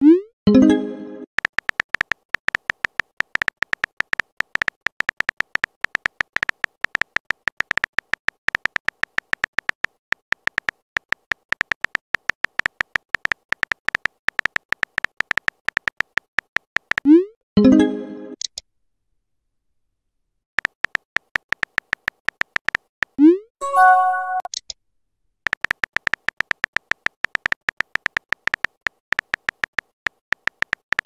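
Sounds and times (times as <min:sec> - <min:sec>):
keyboard tap clicks with beep: 0:23.6 - 0:24.6.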